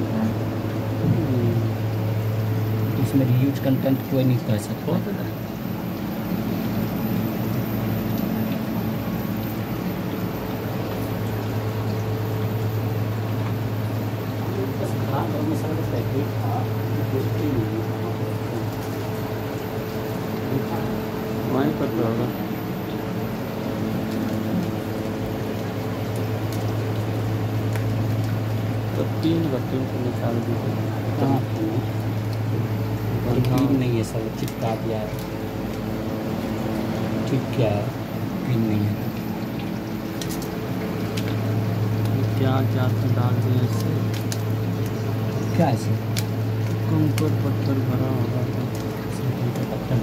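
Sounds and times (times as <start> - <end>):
low mechanical hum: 0.0 - 50.0.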